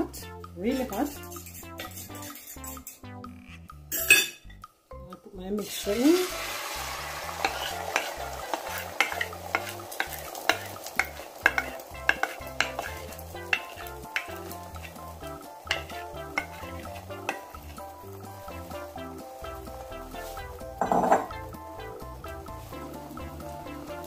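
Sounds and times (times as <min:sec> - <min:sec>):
soft background music: 0:00.0 - 0:24.0
egg sizzling in hot pan: 0:00.7 - 0:03.1, 0:05.7 - 0:24.0
spatula scraping glass bowl: 0:01.1 - 0:03.0, 0:07.4 - 0:15.0, 0:15.7 - 0:17.7.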